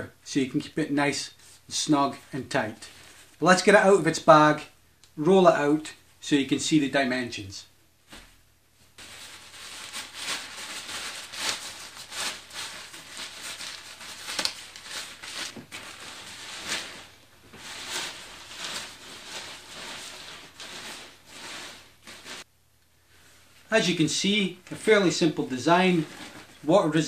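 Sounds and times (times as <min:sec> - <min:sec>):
nylon bag rustling and crinkling: 0:09.0 - 0:22.5, 0:25.9 - 0:26.7.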